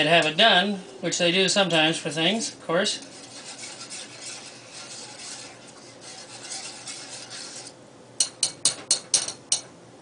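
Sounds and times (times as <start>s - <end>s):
whisk scraping saucepan: 1.6s - 8.8s
whisk tapping pot: 2.3s - 9.6s.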